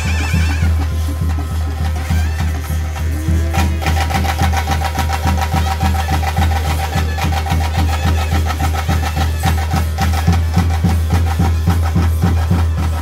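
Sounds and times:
fast drumming: 0.0 - 13.0.

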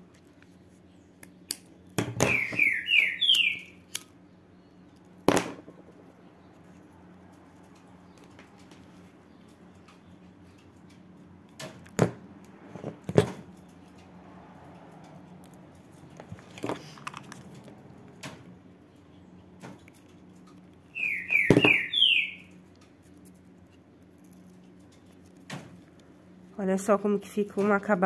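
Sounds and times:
low steady hum: 0.0 - 28.0
clicks and knocks of handling: 7.3 - 18.5, 19.6 - 20.8
high sliding chirps: 20.9 - 22.5.

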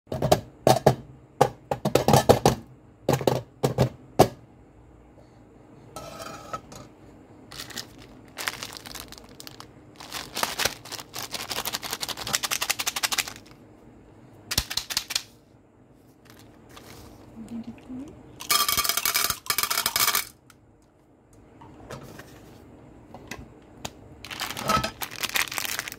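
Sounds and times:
candies poured into metal tin: 7.5 - 13.5, 18.4 - 20.4, 24.3 - 25.9.

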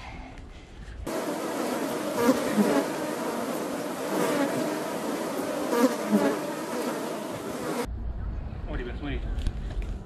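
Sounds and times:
insects buzzing: 1.1 - 7.9.

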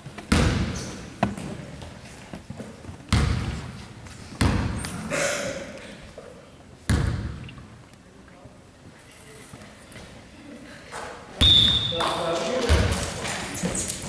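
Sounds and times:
basketball bouncing on hardwood floor: 0.2 - 0.7, 3.1 - 3.6, 6.9 - 7.4.

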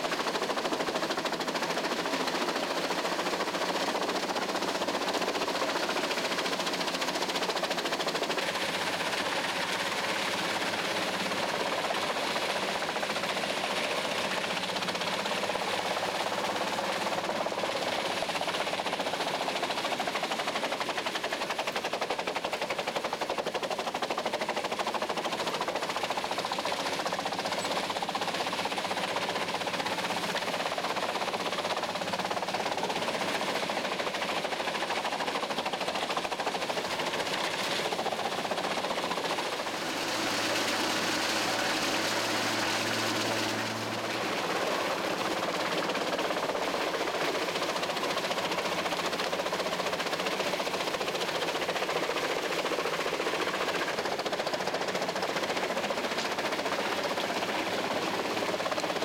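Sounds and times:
wood chipper chipping branches: 36.9 - 49.4.

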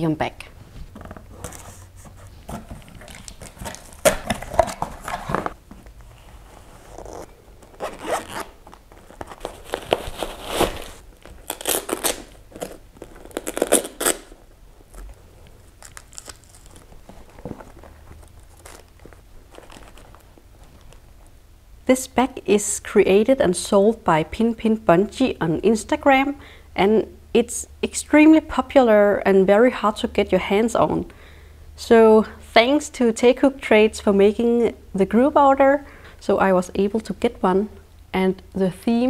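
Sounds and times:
plastic packaging rustling and tearing: 1.4 - 5.6, 6.7 - 21.0.

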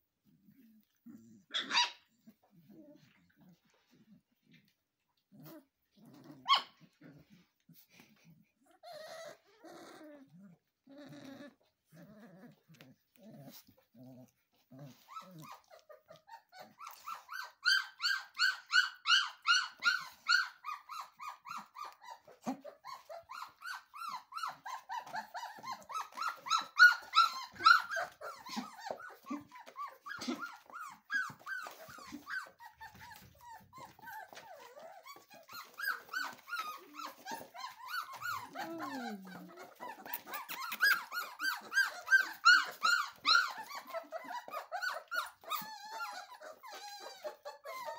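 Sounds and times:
puppies growling: 0.0 - 47.9
puppies yipping and squealing: 1.2 - 3.2, 6.3 - 8.0, 8.8 - 10.0, 14.5 - 47.9.

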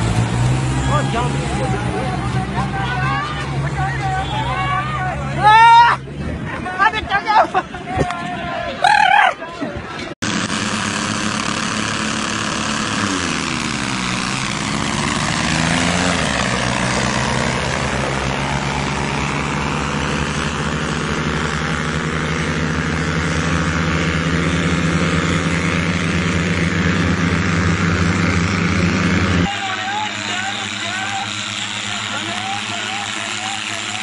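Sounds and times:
tractor diesel engines at full throttle: 0.0 - 34.0.

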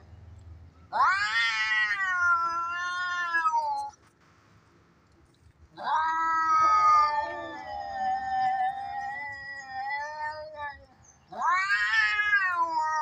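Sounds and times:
cat yowling: 0.9 - 3.9, 5.8 - 13.0.

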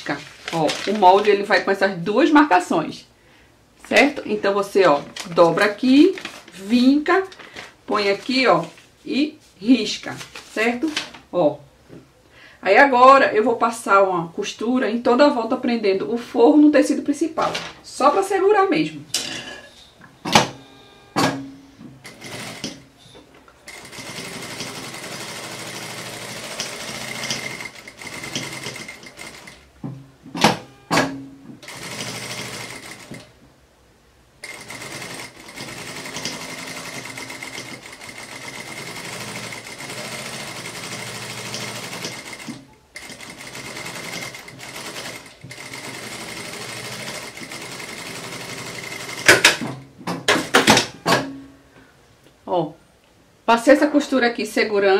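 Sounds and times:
sewing machine running: 22.0 - 22.8, 23.7 - 29.6, 30.5 - 33.3, 34.4 - 49.6.

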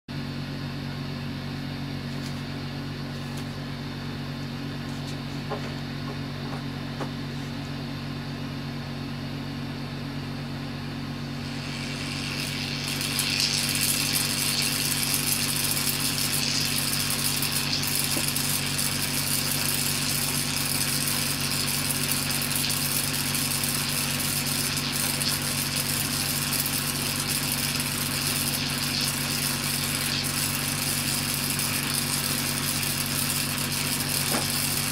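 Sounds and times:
low electrical hum: 0.1 - 34.9
electric discharge sizzling in water: 11.2 - 34.9.

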